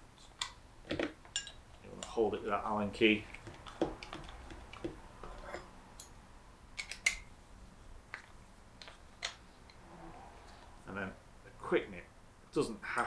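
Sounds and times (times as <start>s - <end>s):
metal tool clicks and taps: 6.8s - 7.3s.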